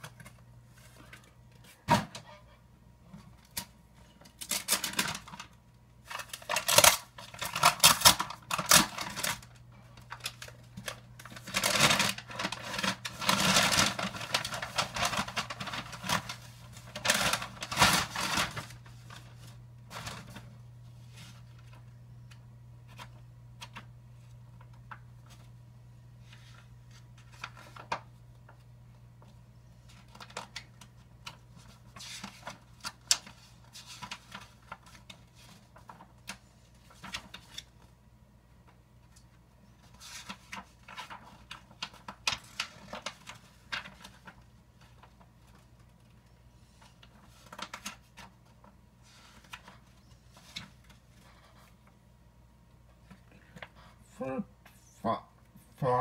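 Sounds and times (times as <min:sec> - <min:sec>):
packaging rustling and crinkling: 0:04.2 - 0:21.9, 0:29.2 - 0:37.9, 0:39.0 - 0:51.9.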